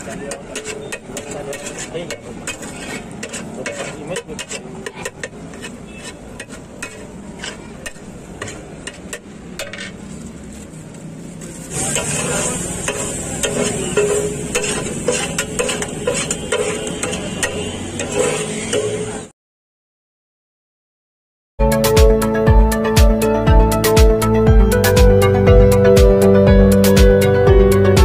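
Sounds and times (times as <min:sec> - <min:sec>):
metal spatula scraping griddle: 0:00.0 - 0:10.3, 0:11.5 - 0:19.3
food sizzling: 0:11.6 - 0:19.2.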